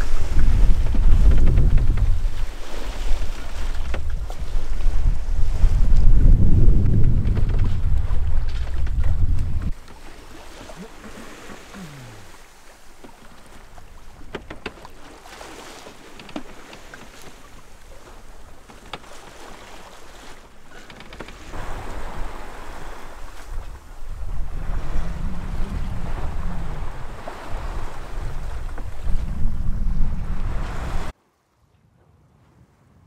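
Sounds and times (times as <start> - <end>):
wind buffeting microphone: 0.0 - 9.8, 21.4 - 31.1
wind and water rushing: 0.0 - 31.2.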